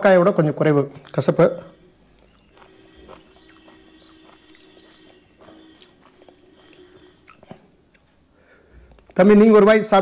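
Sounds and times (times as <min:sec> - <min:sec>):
faint steady hum: 0:00.0 - 0:10.0
person chewing food: 0:01.9 - 0:09.2.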